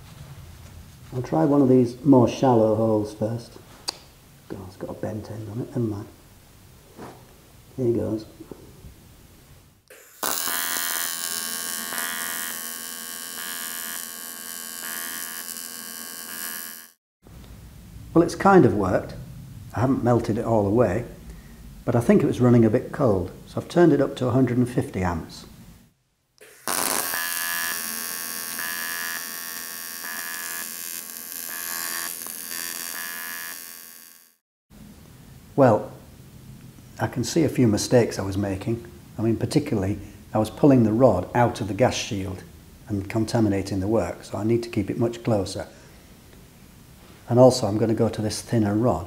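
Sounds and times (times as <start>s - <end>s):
pulsing high tone: 9.9s - 17.0s
welding arc buzzing: 9.9s - 17.0s, 26.4s - 34.4s.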